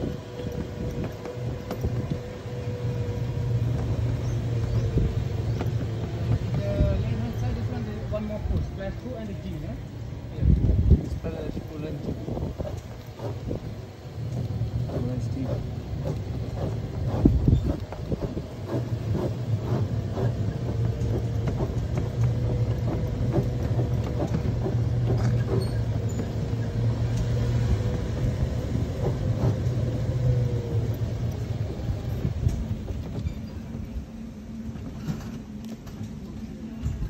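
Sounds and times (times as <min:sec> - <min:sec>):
vehicle low hum: 0:00.0 - 0:37.0
light rattles and knocks: 0:10.5 - 0:33.9.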